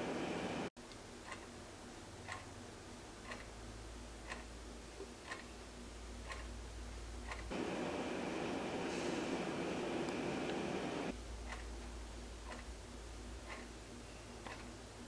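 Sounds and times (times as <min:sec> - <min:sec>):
room hiss: 0:00.0 - 0:15.0
wall clock ticking: 0:01.2 - 0:01.6, 0:02.2 - 0:07.6, 0:11.1 - 0:15.0.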